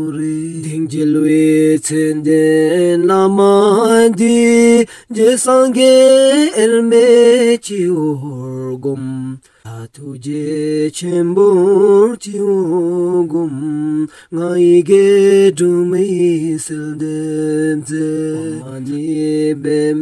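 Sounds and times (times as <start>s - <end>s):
person chanting mantra: 11.8s - 20.0s.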